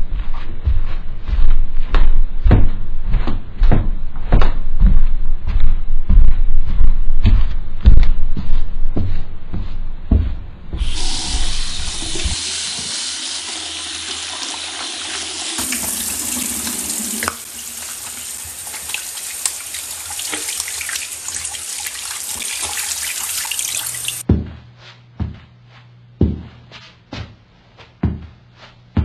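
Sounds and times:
tap running into sink: 10.8s - 21.0s
splashing face washing: 10.8s - 24.2s.

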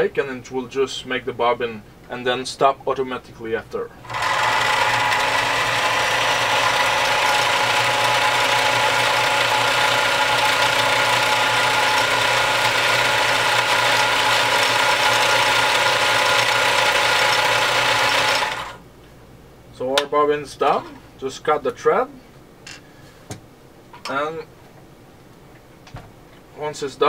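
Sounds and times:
sewing machine motor whirring: 4.1s - 18.8s.

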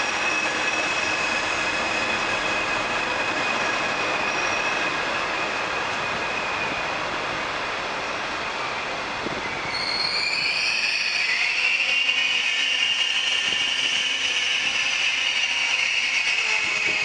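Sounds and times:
higher wheel squeal: 0.0s - 7.1s, 8.8s - 17.0s
train wheels squealing: 0.0s - 7.3s, 8.6s - 17.0s.

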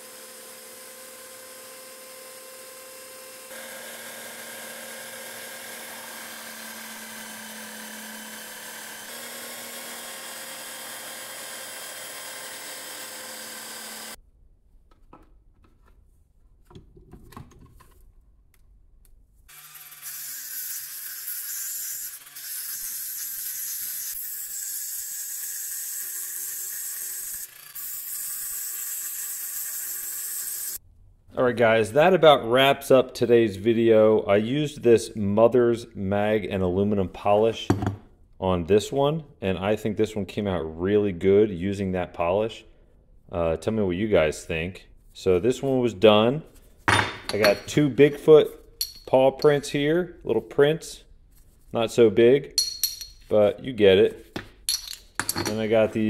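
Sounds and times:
power tool motor whine: 0.0s - 14.2s.

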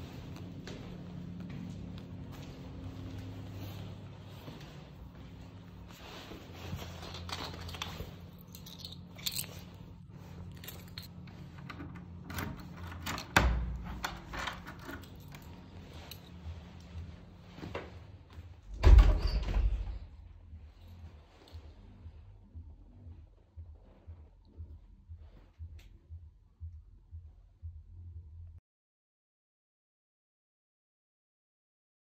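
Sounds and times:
footsteps: 0.0s - 11.6s, 14.2s - 18.8s
keys jangling: 6.8s - 11.4s, 12.3s - 16.8s
door thumping open: 18.7s - 20.1s.

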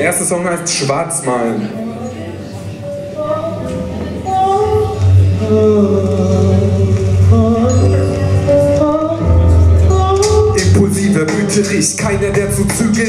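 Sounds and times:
deep bass: 4.0s - 13.0s
hip-hop backing track over pa: 7.3s - 13.0s.

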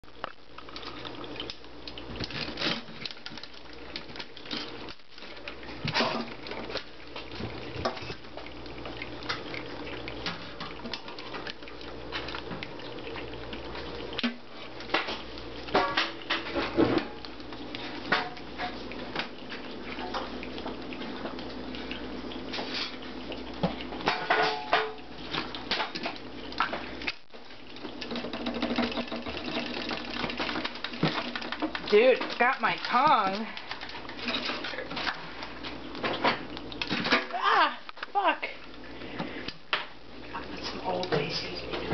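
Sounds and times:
low background hum: 0.0s - 41.9s
crab claws clicking on sink: 27.8s - 34.2s.

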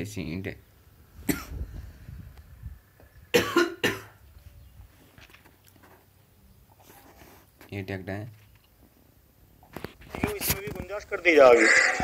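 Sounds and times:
person coughing: 1.3s - 1.6s, 3.4s - 4.2s.

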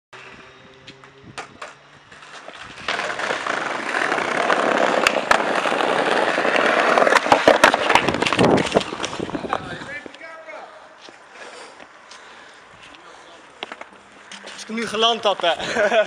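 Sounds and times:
skateboard wheels rolling on bricks: 0.2s - 10.2s
skateboard wheels clacking on joints: 1.4s - 10.2s.

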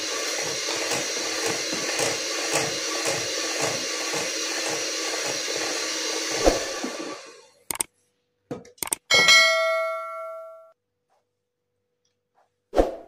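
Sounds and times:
electric hand mixer running: 0.0s - 7.6s.

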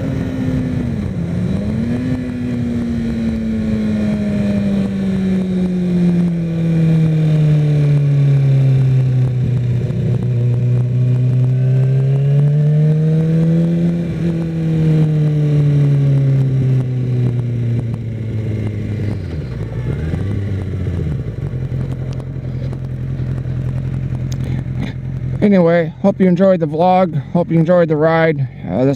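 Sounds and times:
motorcycle engine revving: 0.0s - 28.5s.

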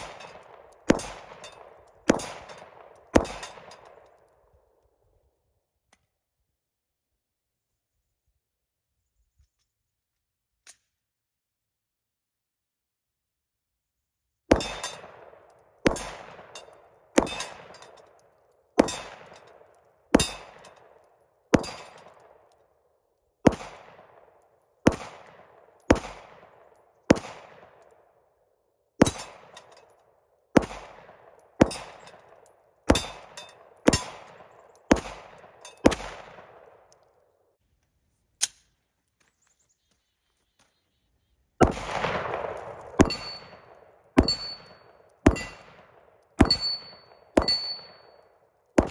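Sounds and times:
pistol shots: 0.0s - 4.4s, 14.5s - 22.7s, 23.4s - 28.2s, 29.0s - 37.2s, 41.6s - 48.9s
steel targets clanging: 43.0s - 45.7s, 46.4s - 48.2s.

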